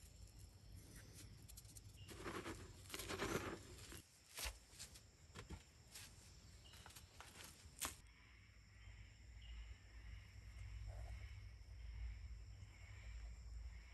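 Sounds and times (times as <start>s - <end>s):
hand stirring through powder: 1.9s - 4.0s.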